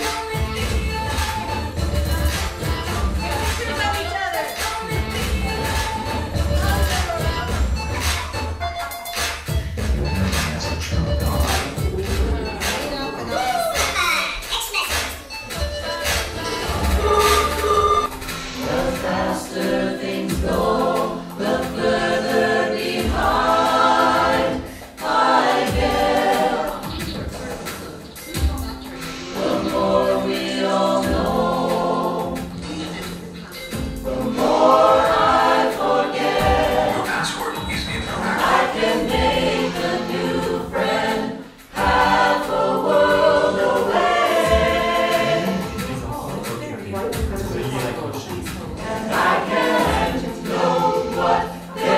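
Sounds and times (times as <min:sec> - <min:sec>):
choir singing in harmony: 0:00.0 - 0:08.1, 0:15.3 - 0:51.9
short high notes: 0:14.9 - 0:18.8.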